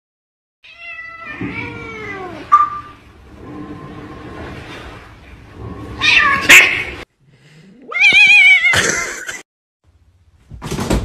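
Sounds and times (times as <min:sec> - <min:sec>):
cat yowling: 0:06.0 - 0:07.0, 0:07.8 - 0:08.8.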